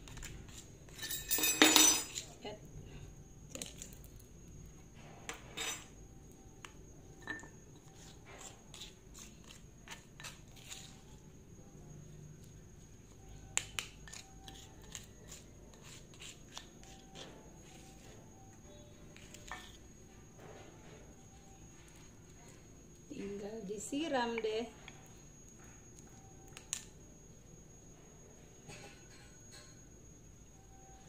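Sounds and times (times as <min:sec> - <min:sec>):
spatula scraping stone mortar: 0:07.8 - 0:11.0, 0:14.1 - 0:17.9.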